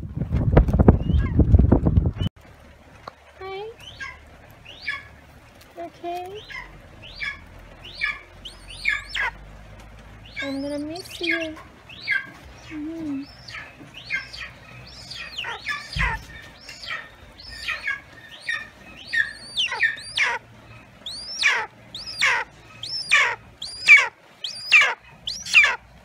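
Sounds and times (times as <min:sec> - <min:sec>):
eagle calling in piping notes: 0:06.4 - 0:09.4, 0:10.3 - 0:25.8
low thump: 0:15.9 - 0:16.3.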